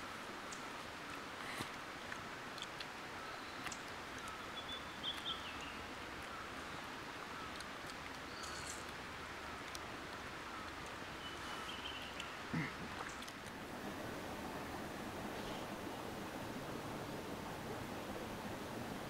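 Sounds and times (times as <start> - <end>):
steady hiss: 0.0 - 19.0
birds calling: 3.2 - 9.7, 10.3 - 13.4.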